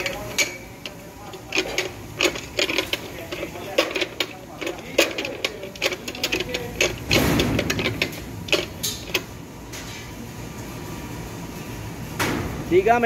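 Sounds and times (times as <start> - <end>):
metallic clicks and knocks: 0.0 - 9.3
sheet metal scraping clatter: 0.0 - 10.1.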